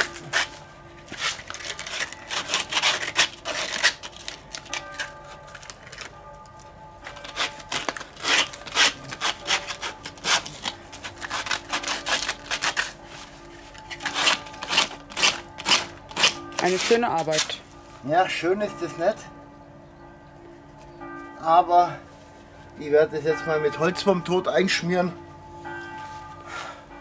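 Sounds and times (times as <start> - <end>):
sandpaper scraping wood: 0.0 - 4.0, 7.2 - 13.0, 14.0 - 17.6.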